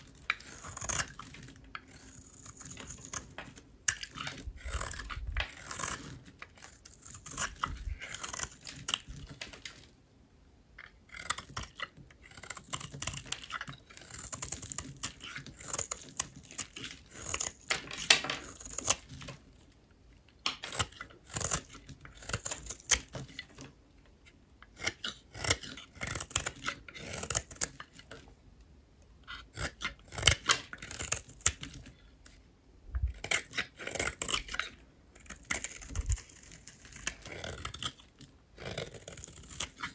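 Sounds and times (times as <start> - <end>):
knife cutting dry soap: 0.0 - 10.0, 10.8 - 28.4, 29.1 - 32.4, 33.0 - 39.9.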